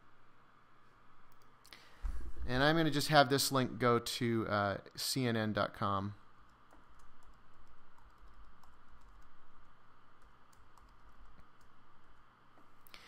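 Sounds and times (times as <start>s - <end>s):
faint low hum: 0.0s - 13.0s
keyboard typing: 6.4s - 12.2s.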